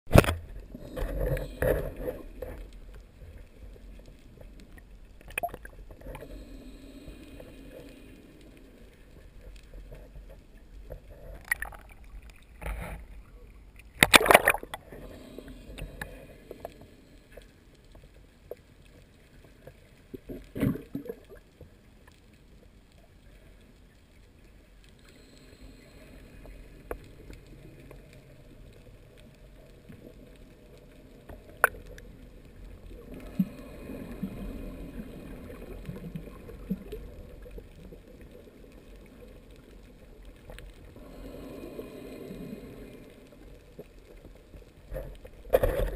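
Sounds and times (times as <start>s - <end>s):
muffled underwater wash: 0.1s - 45.9s
sea water sloshing and splashing: 13.8s - 17.3s.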